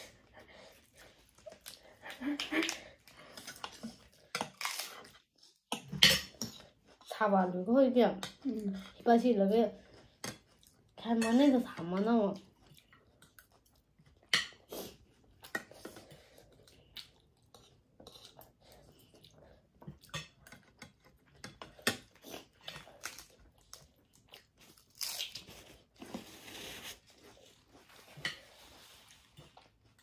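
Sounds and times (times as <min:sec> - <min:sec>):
cutlery clicking on plates: 0:05.7 - 0:06.6
chewing seafood: 0:09.8 - 0:11.1, 0:12.4 - 0:26.0.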